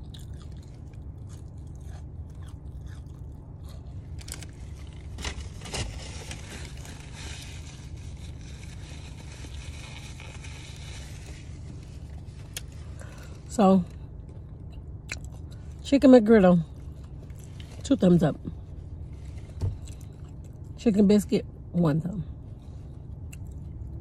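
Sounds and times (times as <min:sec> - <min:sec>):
sandwich crunching and chewing: 0:00.0 - 0:13.4, 0:14.2 - 0:15.8, 0:16.7 - 0:17.8, 0:19.0 - 0:20.8, 0:23.1 - 0:24.0
steady low hum: 0:00.0 - 0:24.0.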